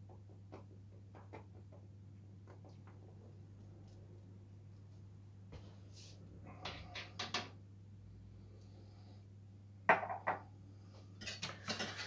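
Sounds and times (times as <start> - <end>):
low electrical hum: 0.0 - 12.0
kitchen clicks and knocks: 6.6 - 7.6, 11.2 - 12.0.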